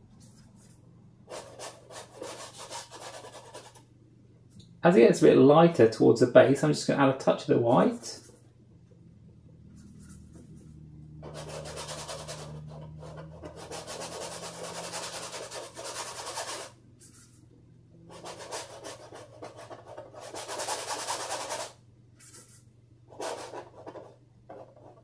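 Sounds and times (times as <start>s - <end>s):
brush scrubbing paint on canvas: 9.8s - 17.4s, 18.1s - 25.0s.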